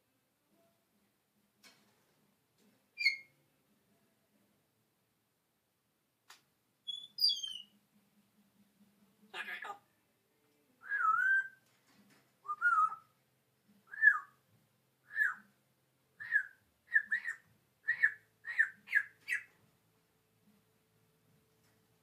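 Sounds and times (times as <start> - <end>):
parrot whistling: 3.0 - 3.3, 6.9 - 7.6, 12.5 - 13.0, 16.2 - 19.5.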